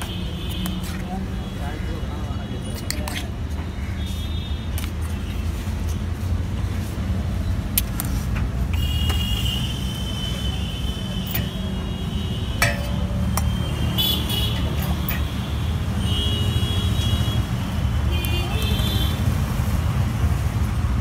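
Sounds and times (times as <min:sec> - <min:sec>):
road traffic rumble: 0:00.0 - 0:21.0
vehicle horns tooting: 0:08.7 - 0:19.3
sharp clinks: 0:11.1 - 0:15.6.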